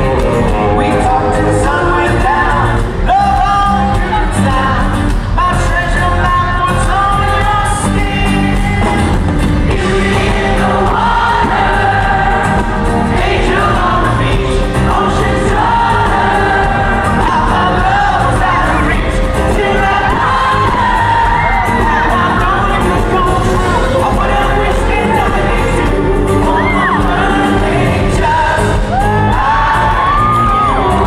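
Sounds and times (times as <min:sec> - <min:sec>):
lead singer singing: 0:00.0 - 0:31.0
live pop-rock band playing: 0:00.0 - 0:31.0
young women singing along: 0:09.7 - 0:31.0.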